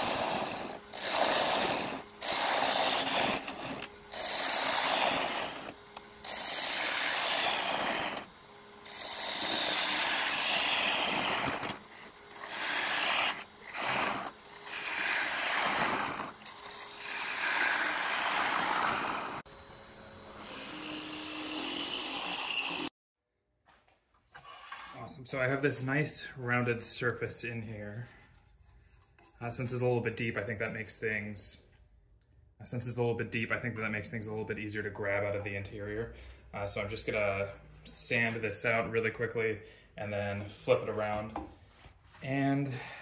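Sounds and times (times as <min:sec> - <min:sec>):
tool scraping wood on lathe: 0:00.0 - 0:19.5, 0:24.3 - 0:29.9
lathe humming: 0:00.0 - 0:22.9.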